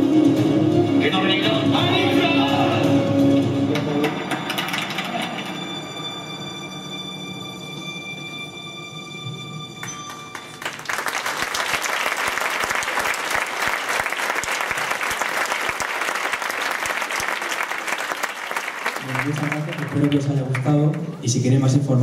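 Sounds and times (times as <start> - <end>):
music with held notes: 0.0 - 10.8
audience applause: 10.1 - 21.1.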